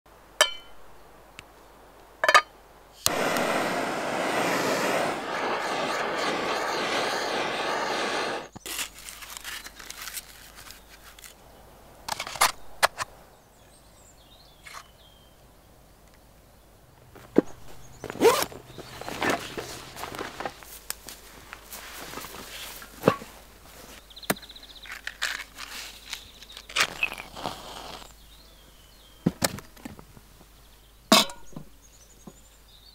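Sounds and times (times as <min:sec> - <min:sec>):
gas blowtorch hissing: 0:03.0 - 0:08.6, 0:26.8 - 0:28.1.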